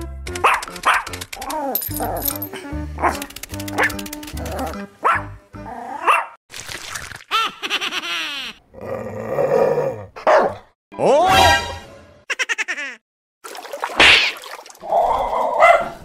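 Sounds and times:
playful background music: 0.0s - 5.9s, 11.0s - 12.3s.

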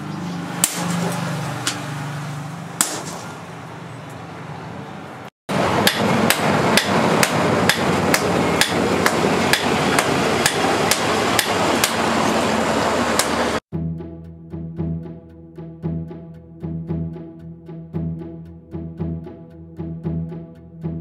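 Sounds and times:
sledgehammers striking steel on anvil: 0.5s - 1.9s, 2.8s - 3.4s, 5.6s - 12.1s.

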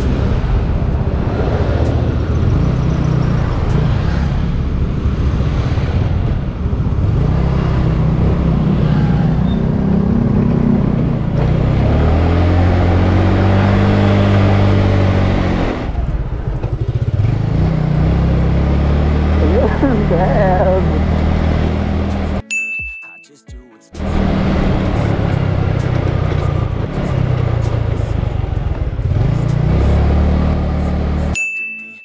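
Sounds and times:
scooter engine running: 14.4s - 22.4s.

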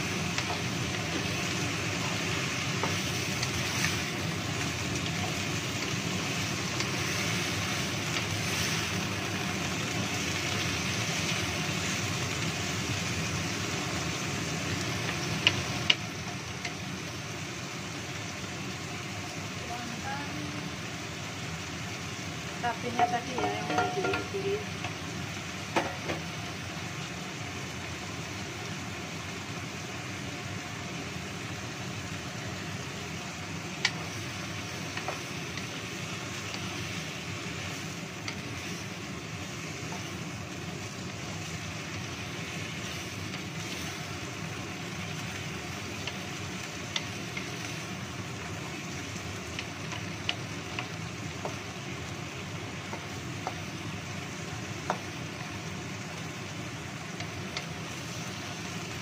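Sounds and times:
vegetables sizzling in a wok: 0.0s - 59.0s
spatula knocking against pan: 23.4s - 24.4s.

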